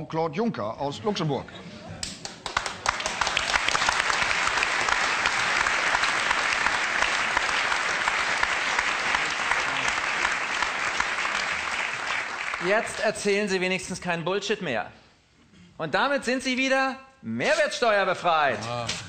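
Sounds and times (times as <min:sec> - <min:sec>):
audience applauding: 0:02.0 - 0:13.4.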